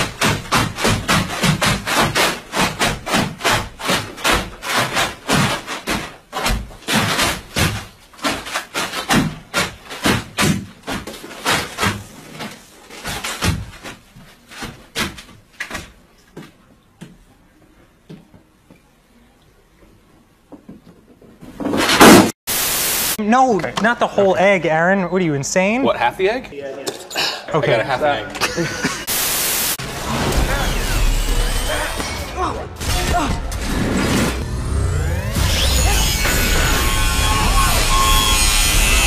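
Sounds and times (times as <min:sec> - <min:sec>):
feet stamping on plastic tarp: 0:00.0 - 0:17.2.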